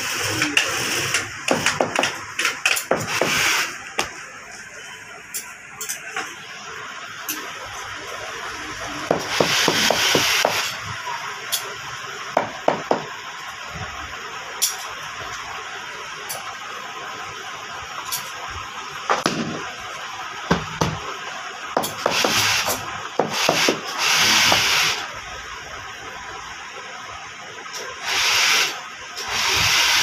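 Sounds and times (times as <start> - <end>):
sharp wooden knocks: 1.5 - 3.1.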